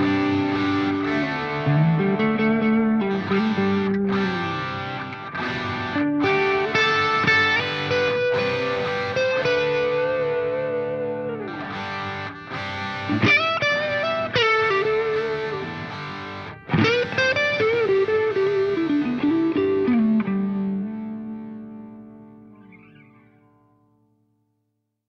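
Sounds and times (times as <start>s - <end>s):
instrumental music with sliding melody: 0.0s - 23.7s.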